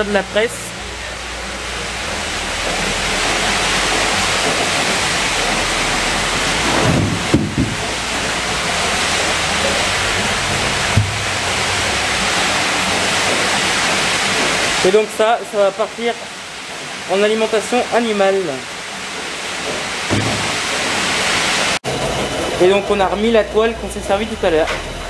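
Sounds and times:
machinery rushing noise: 0:00.0 - 0:25.0
dull knocks: 0:06.7 - 0:08.0, 0:10.9 - 0:11.3, 0:20.1 - 0:20.6.

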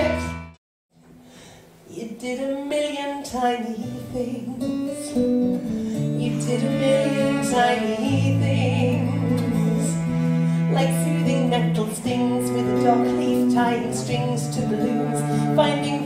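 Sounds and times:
acoustic guitar plucked and strummed: 0:02.5 - 0:16.0
cello bowing low notes: 0:06.1 - 0:16.0.

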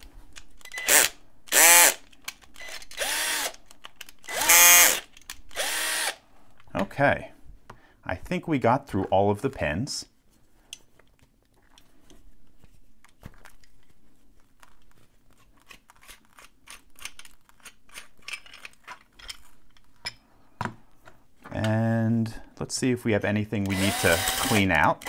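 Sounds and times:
padlock clicks and scrapes: 0:15.4 - 0:19.9.

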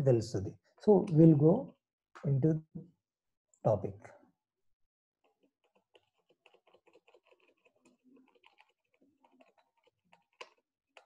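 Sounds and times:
rapid computer keyboard key presses: 0:05.2 - 0:11.0.

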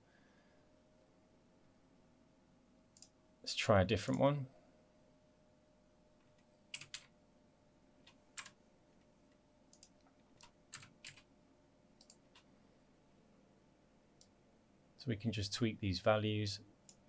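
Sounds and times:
keyboard and mouse clicks: 0:06.2 - 0:07.1, 0:09.7 - 0:11.3, 0:12.0 - 0:12.5.

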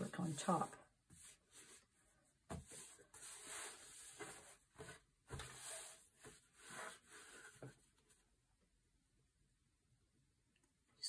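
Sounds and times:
fabric rustling and sliding: 0:00.0 - 0:08.0.

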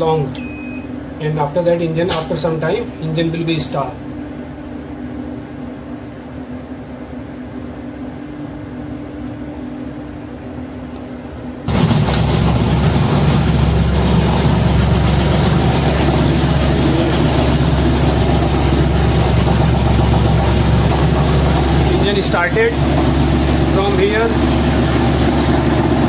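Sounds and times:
diesel engine running: 0:11.6 - 0:26.0.

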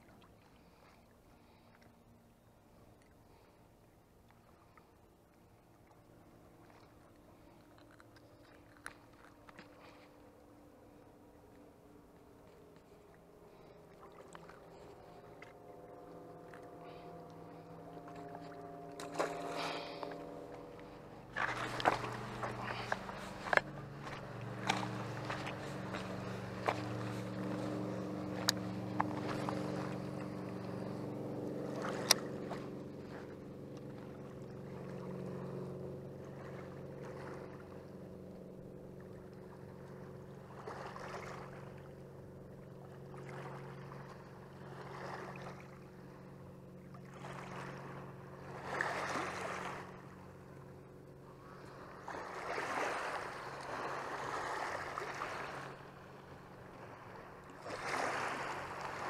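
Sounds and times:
boat motor droning: 0:00.0 - 0:59.0.

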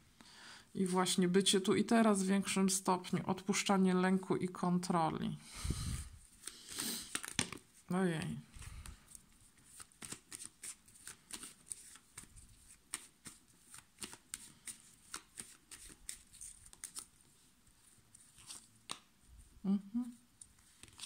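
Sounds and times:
playing cards being shuffled: 0:06.3 - 0:07.8, 0:08.5 - 0:17.2, 0:18.1 - 0:19.1, 0:20.5 - 0:21.0.

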